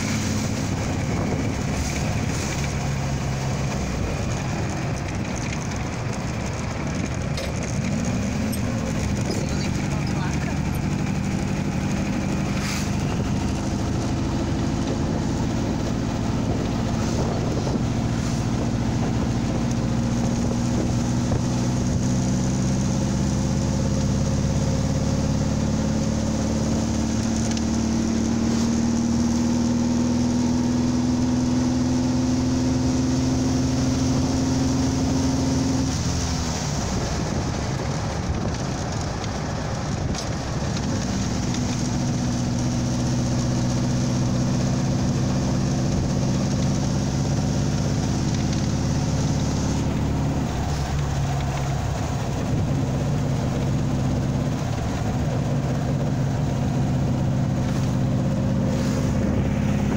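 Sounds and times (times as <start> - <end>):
wind on microphone: 0.0 - 22.6
dune buggy engine running: 0.0 - 59.9.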